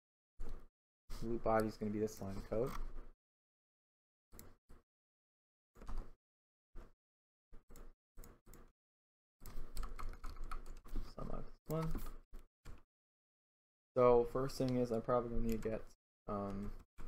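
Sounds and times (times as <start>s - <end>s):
keyboard typing: 9.4s - 11.0s, 14.6s - 15.8s.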